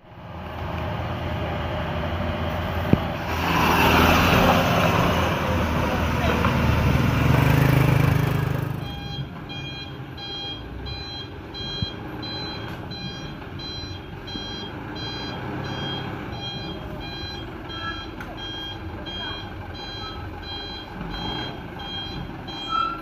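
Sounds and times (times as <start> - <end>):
truck engine rumbling: 0.0 - 23.0
reversing alarm beeping: 8.6 - 23.0.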